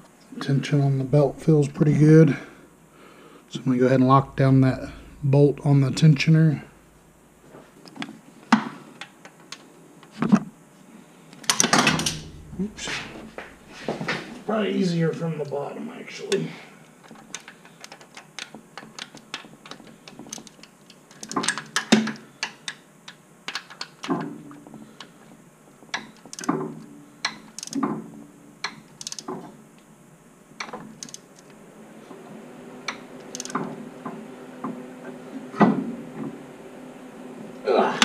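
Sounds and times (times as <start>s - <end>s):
ratchet wrench clicking: 33.3s - 33.6s.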